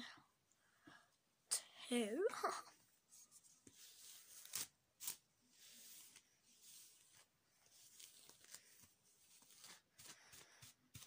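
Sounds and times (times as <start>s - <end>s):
hairbrush swishing through hair: 3.7s - 8.5s.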